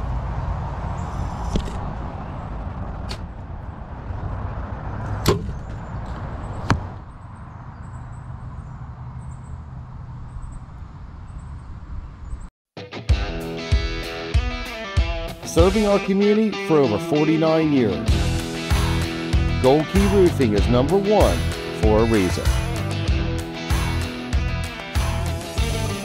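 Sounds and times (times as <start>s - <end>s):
arrows striking: 5.2s - 7.0s.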